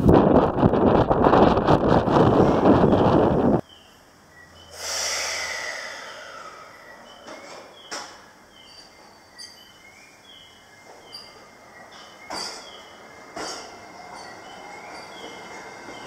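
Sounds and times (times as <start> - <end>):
air hiss: 4.7 - 7.1.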